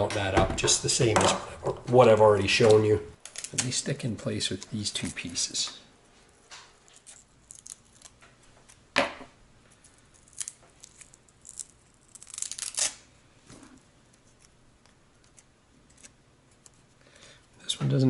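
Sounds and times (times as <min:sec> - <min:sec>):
velcro tearing rasp: 0:10.4 - 0:13.0.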